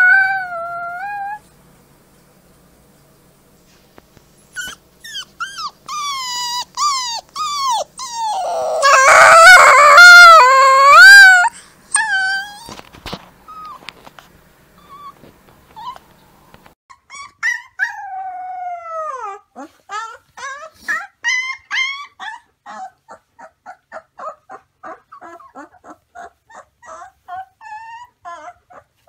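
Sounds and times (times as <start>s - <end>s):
wolf pup howling: 0.0s - 1.4s, 4.6s - 12.8s
wolf pup whimpering: 0.0s - 1.4s, 4.5s - 12.8s, 14.8s - 15.2s, 15.8s - 16.1s, 16.9s - 29.0s
second pup howling: 5.6s - 12.8s.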